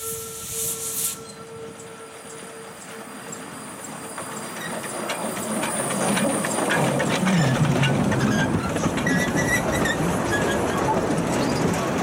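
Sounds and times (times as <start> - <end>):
steam hissing: 0.0 - 2.0
train wheels clattering on track: 0.9 - 12.0.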